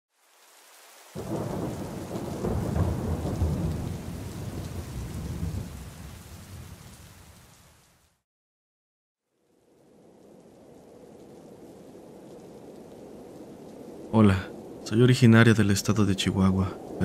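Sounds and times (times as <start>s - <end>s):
rain: 0.1s - 8.2s, 9.2s - 17.0s
thunderclap: 1.2s - 7.0s.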